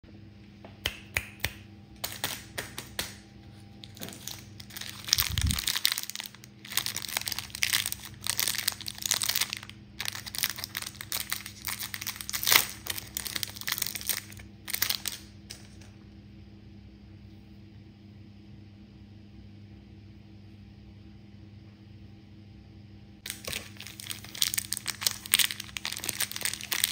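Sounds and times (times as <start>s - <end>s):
plastic wrapper crinkling: 2.0s - 3.1s, 3.8s - 15.9s, 23.2s - 26.9s.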